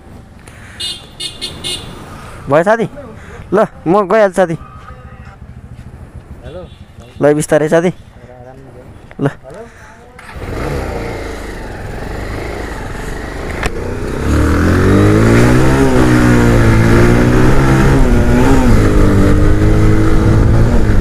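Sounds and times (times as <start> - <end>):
motorcycle engine accelerating: 10.2 - 21.0.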